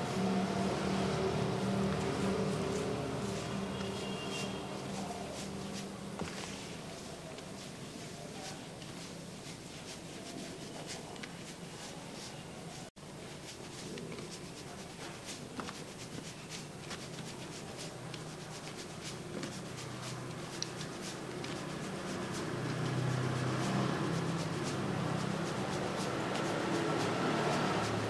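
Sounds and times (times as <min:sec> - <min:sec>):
steady low hum: 0:00.0 - 0:08.5
fingertips rubbing through hair: 0:00.0 - 0:28.0.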